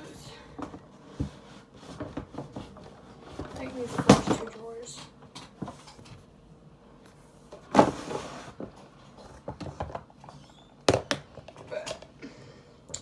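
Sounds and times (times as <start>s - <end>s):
drawer scraping slide: 7.7s - 8.6s.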